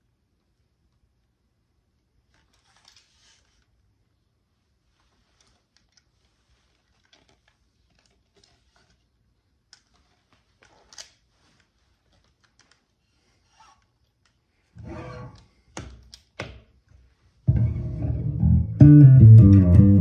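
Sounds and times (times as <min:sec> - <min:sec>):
bass guitar handling taps: 0:17.5 - 0:20.0
low bass note: 0:17.5 - 0:20.0.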